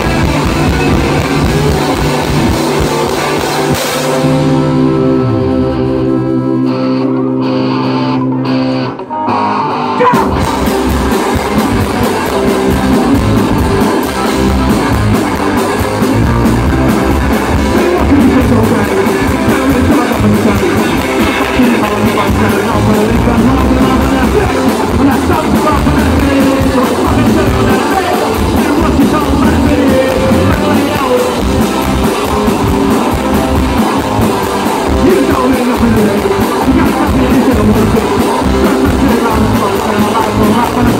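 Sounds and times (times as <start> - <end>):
lead vocal: 0.0 - 7.5, 9.9 - 13.4, 17.2 - 40.9
electric guitar chord ringing: 0.0 - 22.5
live rock band: 0.0 - 40.9.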